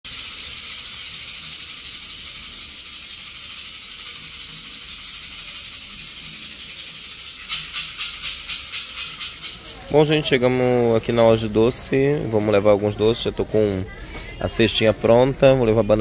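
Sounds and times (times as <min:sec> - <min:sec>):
rattle shaken: 0:00.0 - 0:12.6.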